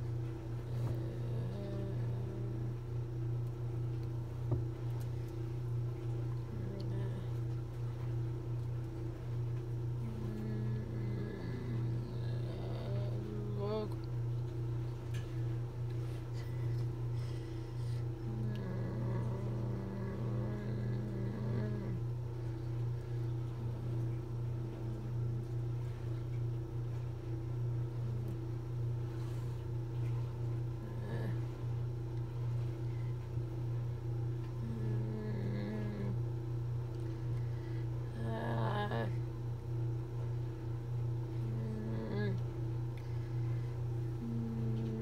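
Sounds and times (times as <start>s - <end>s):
steady low hum: 0.0s - 45.0s
person humming: 0.7s - 2.8s, 6.5s - 7.5s, 10.0s - 14.1s, 17.8s - 22.1s, 34.6s - 36.2s, 38.1s - 39.3s, 41.4s - 42.5s, 44.1s - 45.0s.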